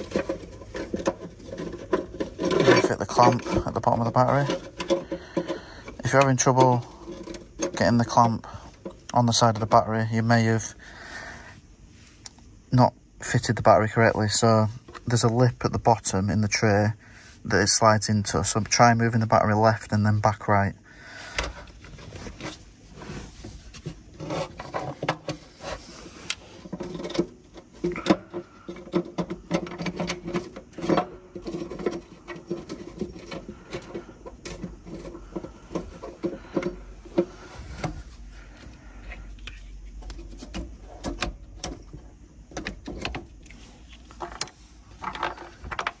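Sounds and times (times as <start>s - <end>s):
scraping of plastic and metal: 0.0s - 10.8s, 21.0s - 46.0s.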